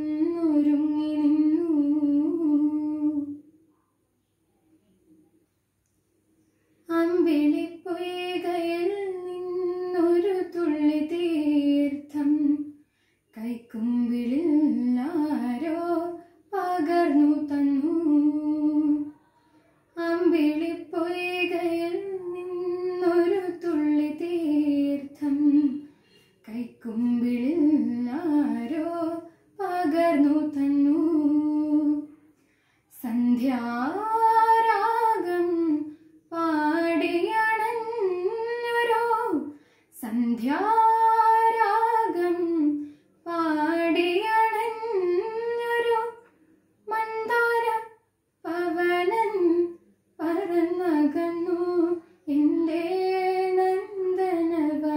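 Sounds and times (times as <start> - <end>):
girl singing unaccompanied: 6.9 - 19.2, 19.9 - 32.2, 46.8 - 54.9.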